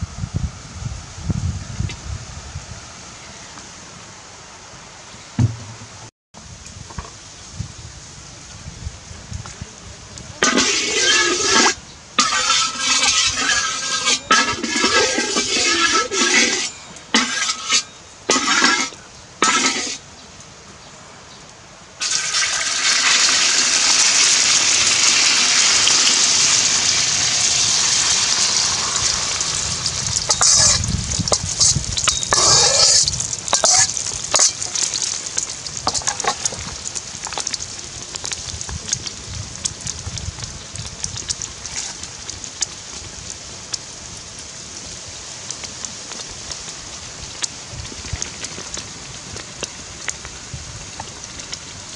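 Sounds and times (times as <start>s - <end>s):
eggs sizzling in hot oil: 10.4s - 20.0s, 22.0s - 51.9s
oil crackling spits: 10.4s - 20.0s, 22.0s - 44.2s.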